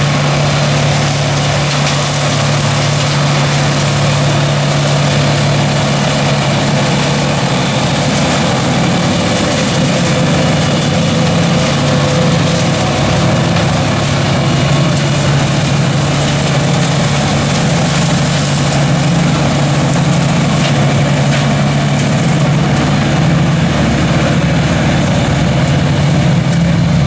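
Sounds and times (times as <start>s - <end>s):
tractor engine droning: 0.0s - 27.0s.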